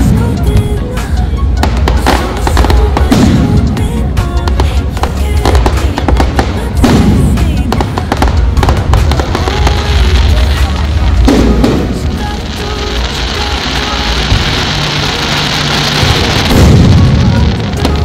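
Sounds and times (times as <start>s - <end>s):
fireworks bangs and crackling: 1.5s - 18.0s.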